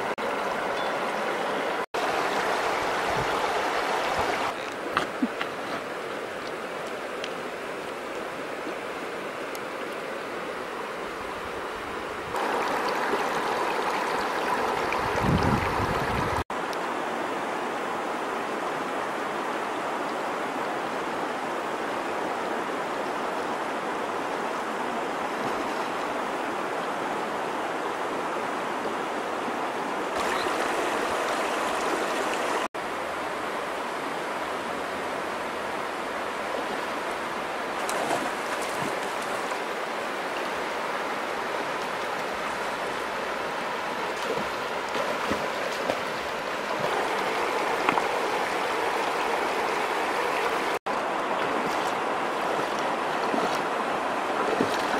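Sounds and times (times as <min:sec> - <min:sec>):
river rushing over rocks: 0:00.0 - 0:04.9, 0:12.2 - 0:54.9
faint water splashes: 0:30.2 - 0:32.7, 0:36.8 - 0:54.9.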